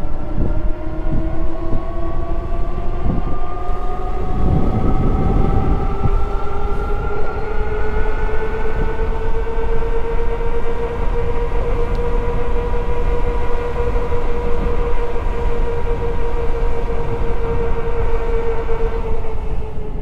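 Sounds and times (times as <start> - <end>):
electric bike motor whining: 0.0 - 20.0
wind rumble: 0.0 - 20.0.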